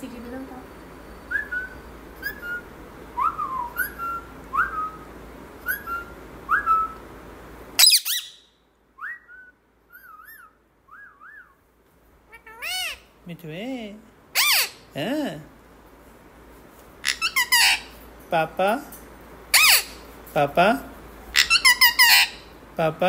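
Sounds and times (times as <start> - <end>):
parakeet whistling: 1.2 - 7.0, 7.8 - 11.6, 14.4 - 14.8, 17.0 - 18.0, 19.5 - 20.0, 21.4 - 22.5
parakeet falling call: 7.8 - 8.4, 21.4 - 22.5
parakeet squawk: 7.8 - 8.5, 12.3 - 13.1, 14.3 - 14.9, 17.0 - 18.0, 19.5 - 20.0, 21.3 - 22.6.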